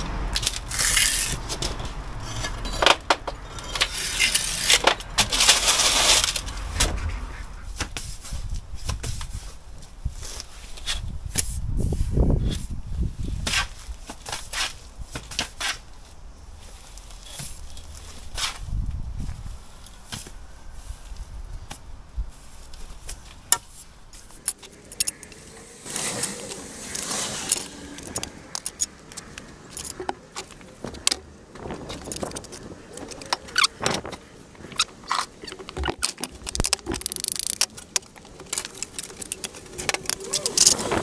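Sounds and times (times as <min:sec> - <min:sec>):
trowel scraping mortar: 0:00.6 - 0:06.4, 0:24.4 - 0:28.9.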